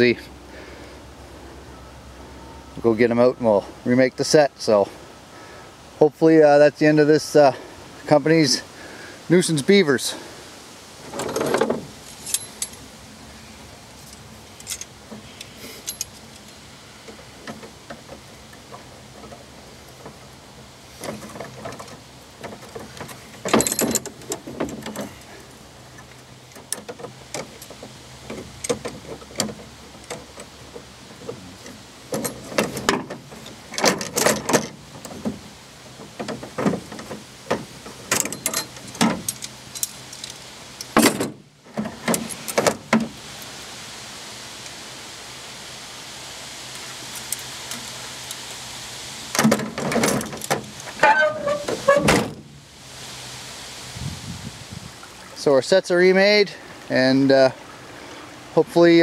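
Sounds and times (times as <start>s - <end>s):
metal trap clanking: 11.1s - 12.8s, 21.1s - 25.2s, 38.0s - 42.8s, 49.4s - 52.4s.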